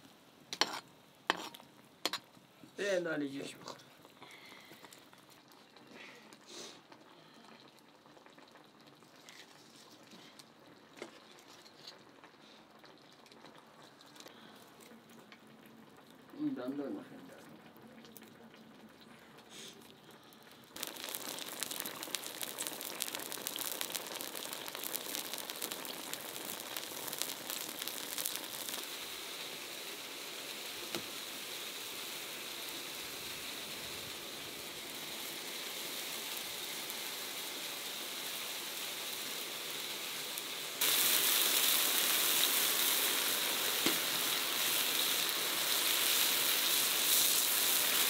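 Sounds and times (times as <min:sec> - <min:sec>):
food sizzling in a wok: 0:00.0 - 0:07.0, 0:20.6 - 0:48.0
oil popping and spattering: 0:20.8 - 0:29.2, 0:40.8 - 0:48.0.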